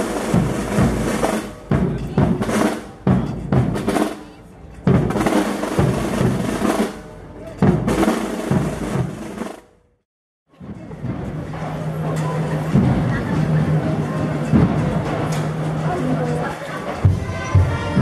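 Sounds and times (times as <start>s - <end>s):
heavy bass drum strikes: 0.0s - 4.1s
snare drum rolls: 0.0s - 4.2s, 4.9s - 7.0s, 7.6s - 9.7s.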